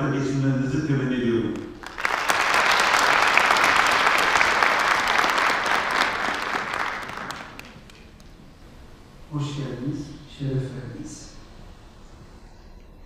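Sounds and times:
large audience applauding: 1.6 - 8.4.

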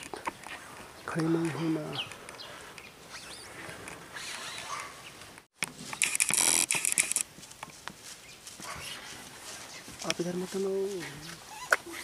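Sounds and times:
crackly rustling: 0.0 - 12.0.

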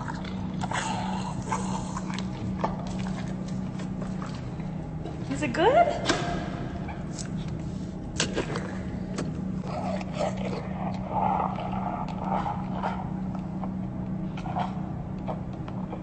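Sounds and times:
wet mouth chewing noises: 0.0 - 4.7, 8.2 - 16.0
low hum: 0.0 - 16.0.

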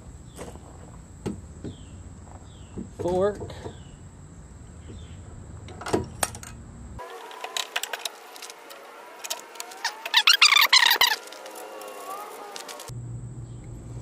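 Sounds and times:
metal parts clinking and rattling: 7.3 - 12.7.

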